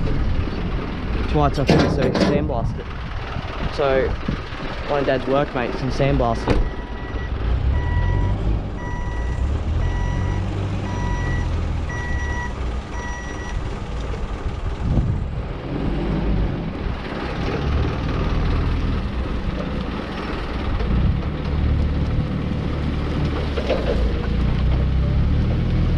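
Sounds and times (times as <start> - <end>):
low engine rumble: 0.0 - 25.9
forklift reversing alarm beeping: 6.6 - 13.6.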